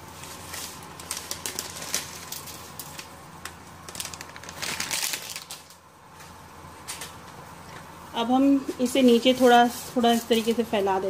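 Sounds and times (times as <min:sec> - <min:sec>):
dry spaghetti rattling in a pot: 0:00.2 - 0:05.8.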